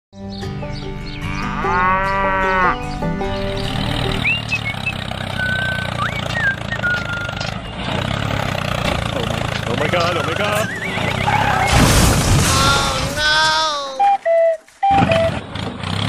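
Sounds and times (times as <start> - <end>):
steady low drone: 0.6 - 6.6
cow mooing: 1.2 - 4.4
whistling bird calls: 3.5 - 7.9, 10.1 - 11.8, 14.0 - 15.6.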